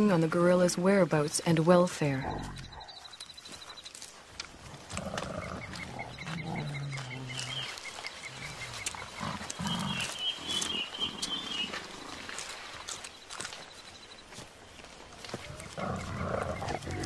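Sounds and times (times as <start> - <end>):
rustles and clicks in vegetation: 0.0 - 17.0
gorillas grunting rumbles: 4.6 - 12.3, 15.3 - 17.0
fast bird chirping: 5.4 - 11.8.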